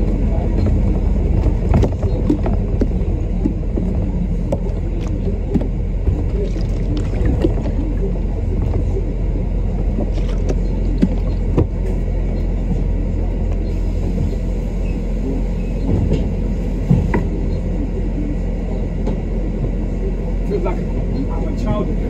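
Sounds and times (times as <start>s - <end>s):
bus engine rumbling: 0.0s - 22.0s.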